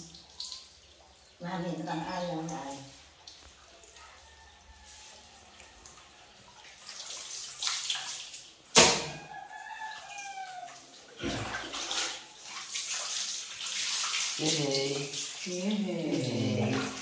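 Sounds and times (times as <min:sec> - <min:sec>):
water splashing on tiled floor: 0:00.0 - 0:17.0
sharp loud knock: 0:08.8 - 0:09.2.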